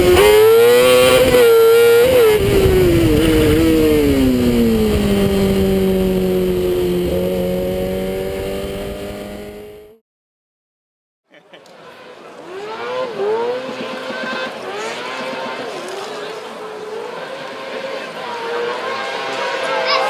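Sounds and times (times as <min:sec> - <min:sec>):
rally car engine revving: 0:00.0 - 0:10.0, 0:11.6 - 0:20.0.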